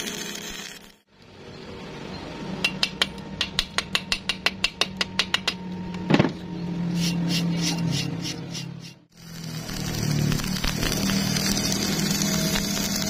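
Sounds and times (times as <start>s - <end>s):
chipping hammer tapping metal: 2.6s - 5.6s.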